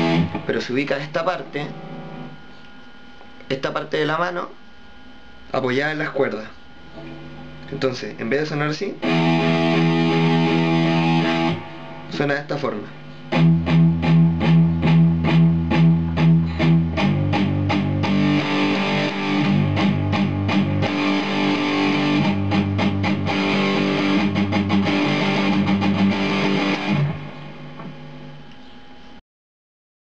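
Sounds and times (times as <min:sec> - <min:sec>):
distorted electric guitar: 0:00.0 - 0:02.6, 0:08.8 - 0:28.7.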